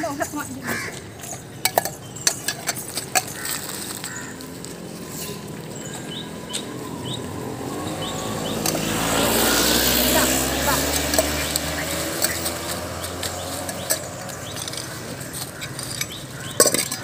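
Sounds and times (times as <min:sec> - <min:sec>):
small birds chirping: 0:00.0 - 0:17.0
steel bowls clinking: 0:00.1 - 0:04.4, 0:09.6 - 0:17.0.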